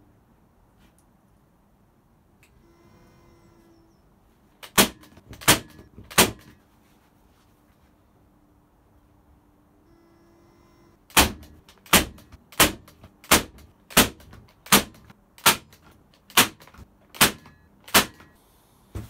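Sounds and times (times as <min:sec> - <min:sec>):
nail gun shots into wood: 0:04.6 - 0:06.6, 0:11.1 - 0:18.4.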